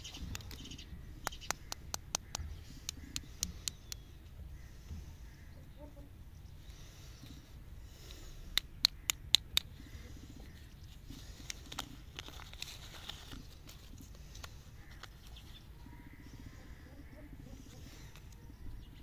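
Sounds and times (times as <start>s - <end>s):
wrapper crinkling and rustling: 11.3s - 15.6s
paper wrapper tearing: 11.6s - 13.9s.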